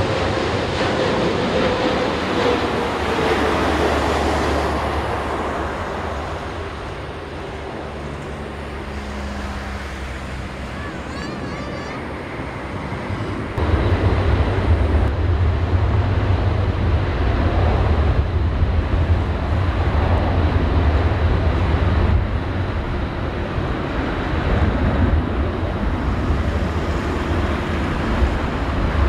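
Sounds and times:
jet engines roaring at high thrust: 0.0s - 29.0s.

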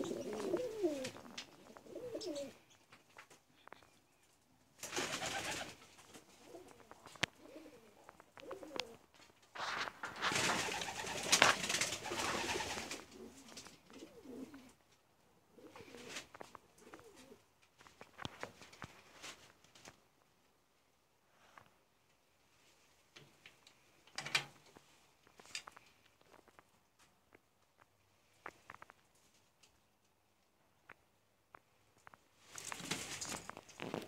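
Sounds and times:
doves cooing: 0.0s - 2.8s, 5.0s - 14.8s, 15.4s - 17.5s
rustling: 0.0s - 34.0s.

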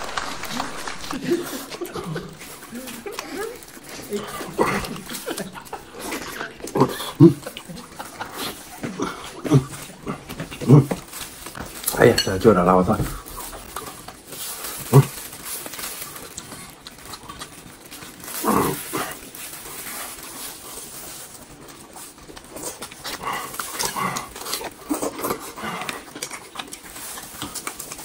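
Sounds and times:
man chewing meat: 0.0s - 28.0s.

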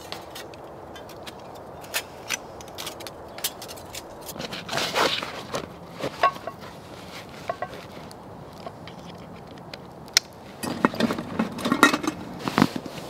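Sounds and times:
fabric sack rustling: 4.3s - 8.1s, 12.2s - 13.0s.

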